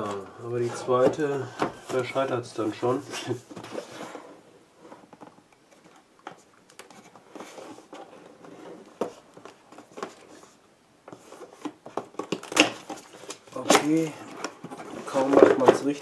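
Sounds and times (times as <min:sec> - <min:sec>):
cardboard box rustling: 0:00.0 - 0:05.2.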